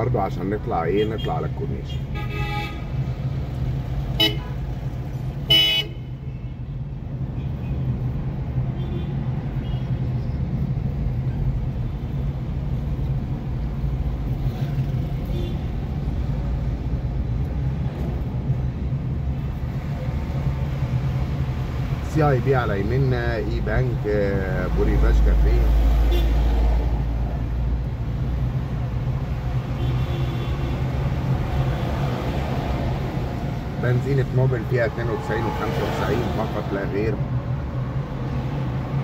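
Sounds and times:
car horn toots: 4.2 - 4.5, 5.5 - 6.0
car interior driving drone: 30.9 - 39.0.

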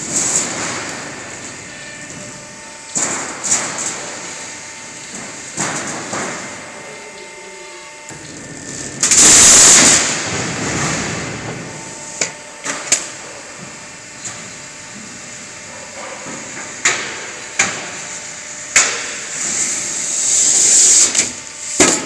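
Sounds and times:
roll-forming machine hiss: 9.0 - 13.1, 16.4 - 22.0.

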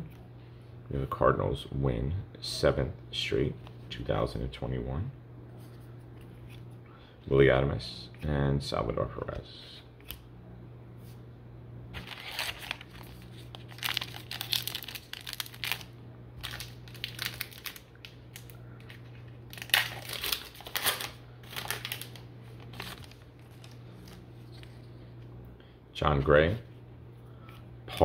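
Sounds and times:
steady low hum: 0.0 - 28.0
wrapper crinkling and tearing: 12.0 - 24.7.

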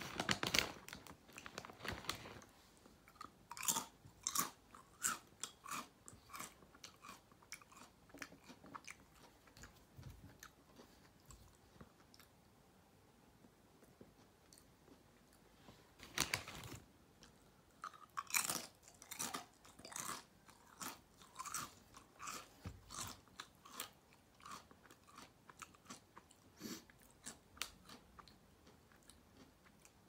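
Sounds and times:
chips crunching while chewed: 3.0 - 11.6, 17.8 - 30.0.

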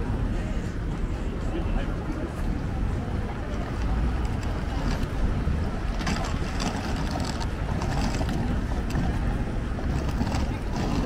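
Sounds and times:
street ambience: 0.0 - 11.0
wind buffeting microphone: 2.2 - 11.0.

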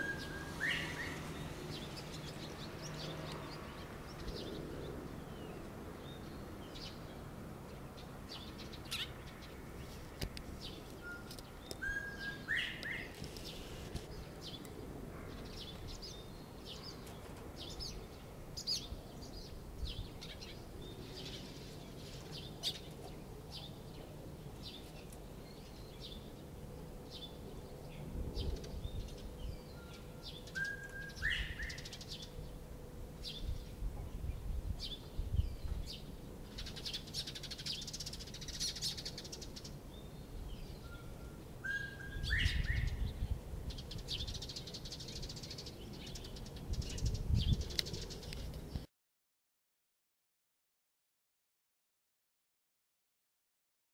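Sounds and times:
bird whistled call: 0.0 - 1.2, 11.0 - 13.1, 29.8 - 31.9, 40.8 - 43.0.

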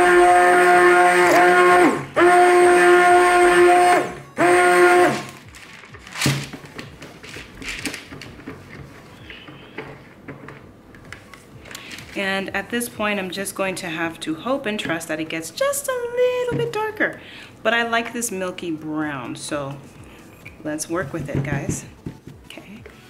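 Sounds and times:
immersion blender motor whine: 0.0 - 5.4.

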